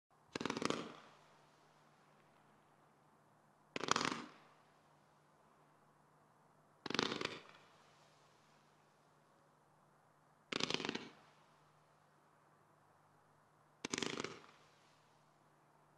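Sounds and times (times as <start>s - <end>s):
fireworks launch shots: 0.3s - 1.2s, 3.7s - 4.5s, 13.8s - 14.7s.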